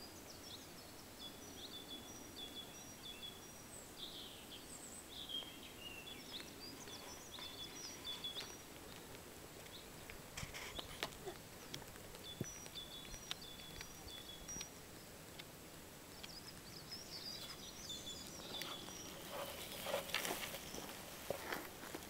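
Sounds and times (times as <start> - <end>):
small birds chirping: 0.0 - 22.0
cat chewing with crunching: 6.4 - 22.0.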